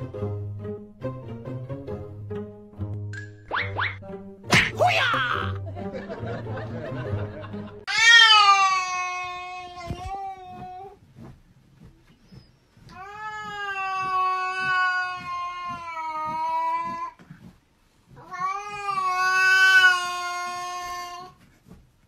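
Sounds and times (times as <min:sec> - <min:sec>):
cat yowling: 0:07.9 - 0:10.6, 0:13.0 - 0:17.1, 0:18.2 - 0:21.3.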